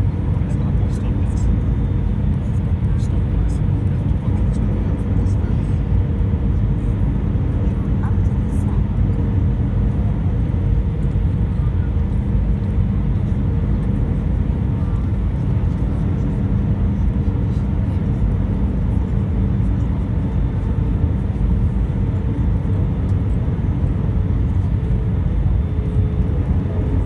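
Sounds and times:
faint constant hum: 0:00.0 - 0:27.0
jet engine drone: 0:00.0 - 0:27.0.

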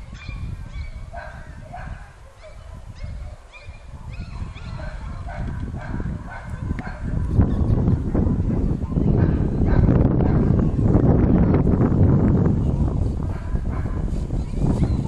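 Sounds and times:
puppies yipping and whimpering: 0:00.1 - 0:01.3, 0:02.4 - 0:05.4.

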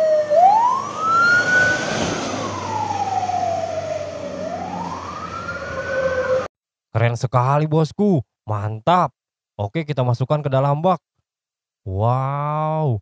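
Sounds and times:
fire truck siren wailing: 0:00.0 - 0:06.5.

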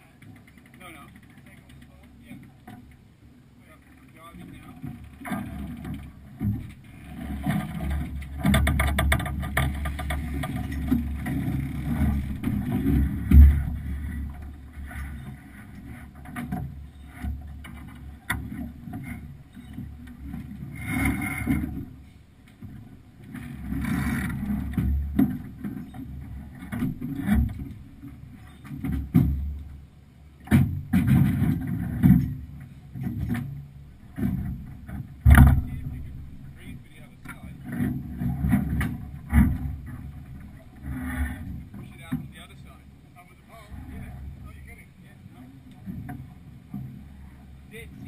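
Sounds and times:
water rushing along hull: 0:00.0 - 0:48.0
wind rumbling on microphone: 0:04.2 - 0:22.0
loud thump: 0:35.2 - 0:36.0.

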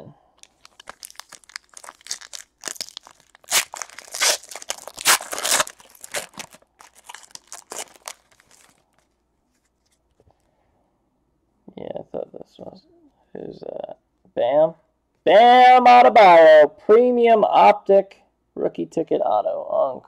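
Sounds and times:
foil wrapper tearing and crinkling: 0:00.4 - 0:09.1.

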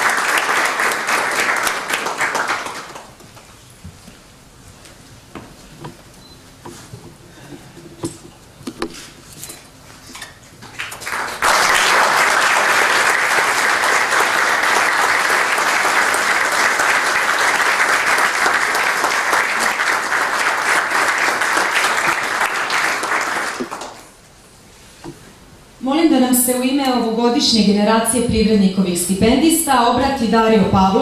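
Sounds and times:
audience clapping: 0:00.0 - 0:03.5, 0:10.6 - 0:24.2.

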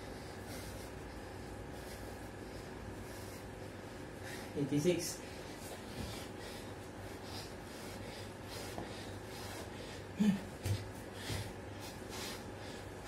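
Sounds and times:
man breathing hard: 0:00.0 - 0:04.6, 0:05.2 - 0:13.0.

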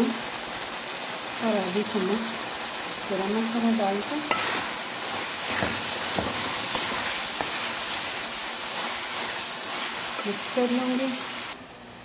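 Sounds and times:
food sizzling in hot oil: 0:00.0 - 0:11.6
wooden spoon knocking and scraping: 0:04.3 - 0:08.2.

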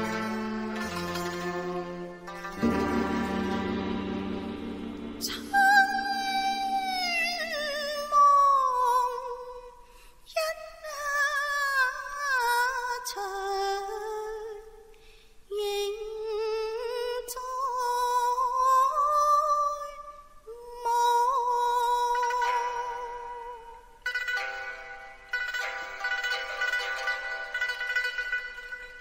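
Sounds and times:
woman singing opera: 0:05.2 - 0:14.7, 0:15.5 - 0:23.9.

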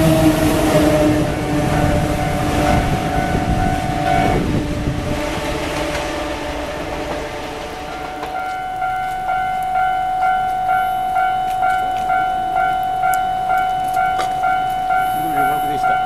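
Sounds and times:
train rumble: 0:00.0 - 0:16.0
level crossing bell ringing: 0:00.7 - 0:04.6, 0:07.8 - 0:16.0.

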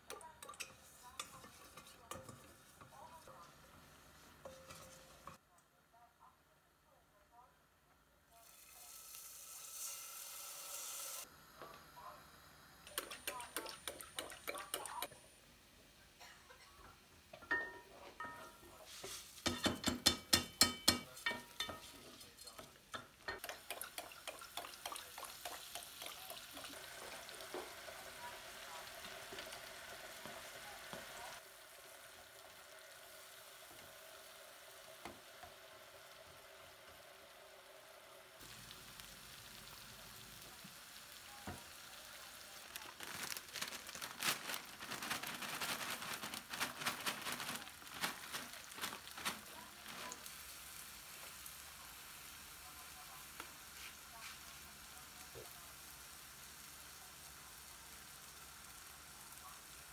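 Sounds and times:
food sizzling in a frying pan: 0:00.0 - 0:05.4, 0:08.3 - 0:59.9.

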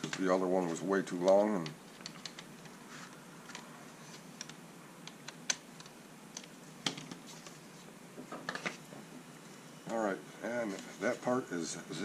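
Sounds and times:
plastic parts clicking and tapping: 0:01.2 - 0:02.8.

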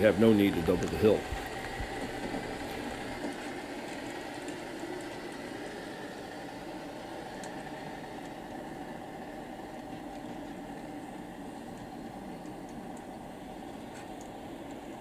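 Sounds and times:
model train rumbling: 0:00.0 - 0:15.0
faint ticks: 0:13.7 - 0:14.9.

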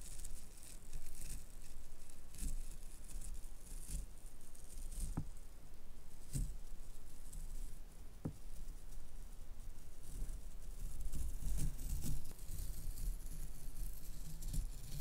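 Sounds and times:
tape peeling crackle: 0:00.0 - 0:05.4, 0:10.0 - 0:15.0.

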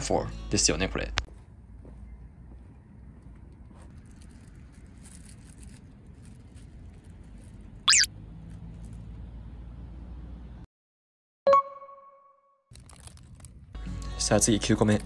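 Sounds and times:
low outdoor rumble: 0:01.1 - 0:10.7.

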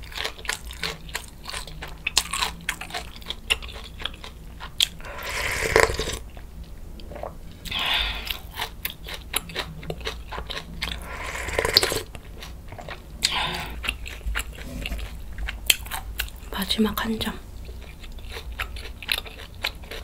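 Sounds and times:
chewing: 0:00.0 - 0:16.4, 0:17.6 - 0:20.0
wet mouth clicks: 0:04.9 - 0:06.2
slurping sips of broth: 0:05.0 - 0:06.2, 0:10.9 - 0:12.1.

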